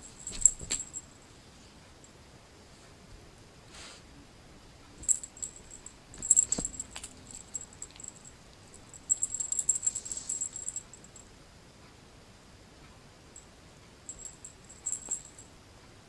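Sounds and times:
cat toy jingling and rattling: 0.0 - 1.1, 5.0 - 11.2, 14.1 - 15.4.

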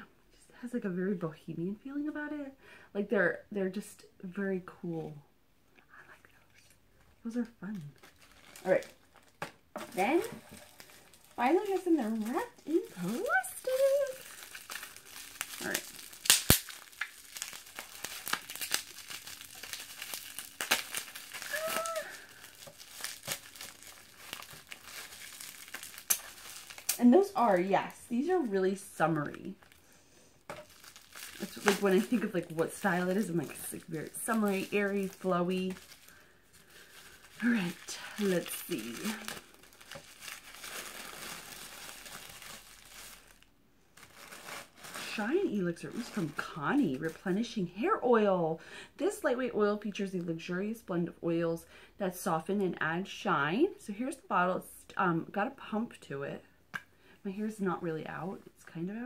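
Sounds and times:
plastic wrapping crinkling: 7.3 - 47.8.

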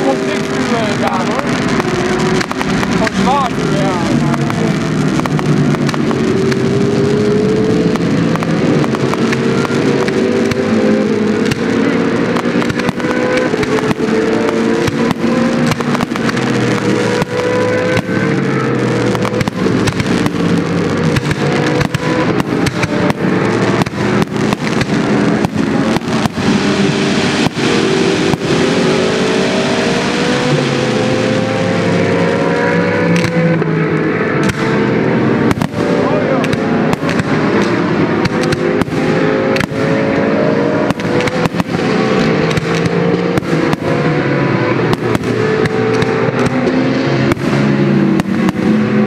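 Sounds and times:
firework bangs and crackles: 0.0 - 49.0
race car engines screaming: 0.0 - 49.0.

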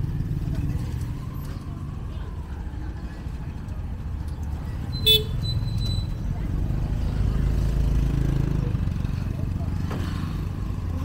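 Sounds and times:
motorbike engines rumbling: 0.0 - 11.0.

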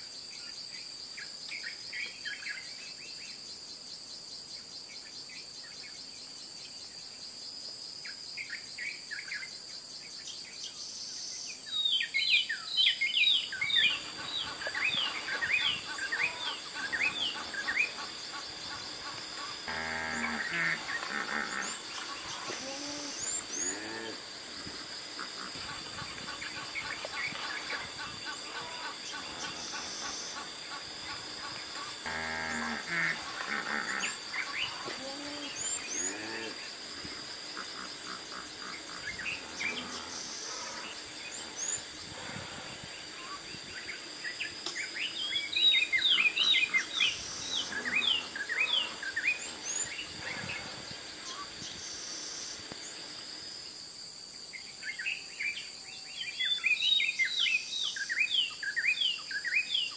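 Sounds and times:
high insect hum: 0.0 - 59.9
birds chirping: 12.0 - 36.8, 37.5 - 52.1.

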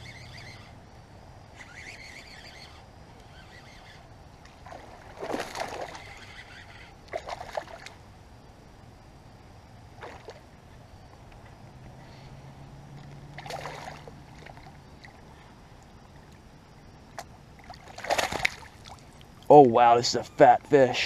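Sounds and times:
fish splashing at water surface: 13.4 - 15.2, 17.6 - 19.3.

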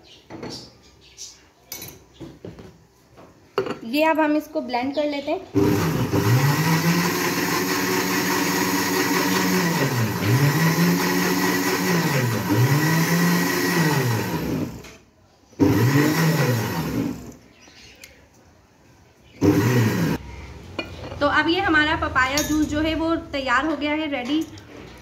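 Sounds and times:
electric blender running: 5.6 - 14.9, 15.6 - 17.4, 19.4 - 20.2.

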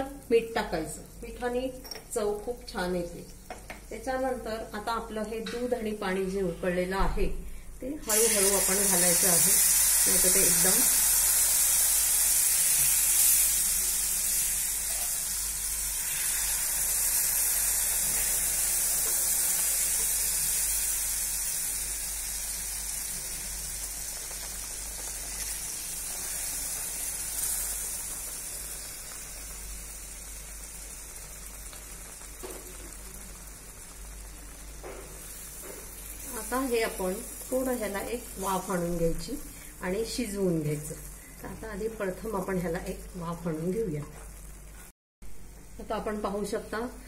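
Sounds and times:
liquid hissing in hot fat: 8.0 - 40.0.

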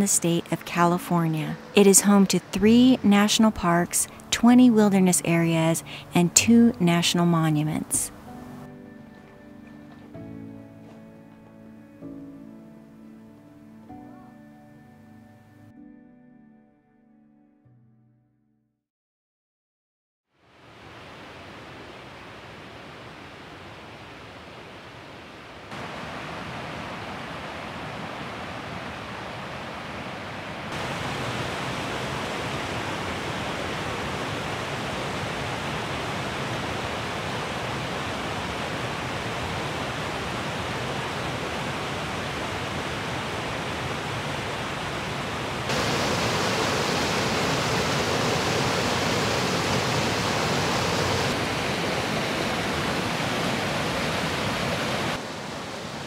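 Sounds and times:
water rushing over rocks: 25.7 - 29.8, 30.7 - 56.0.

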